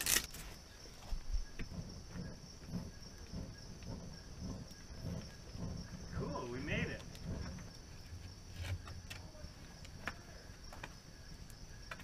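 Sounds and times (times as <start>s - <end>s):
rhythmic whooshes of fanned air: 0.0s - 8.6s.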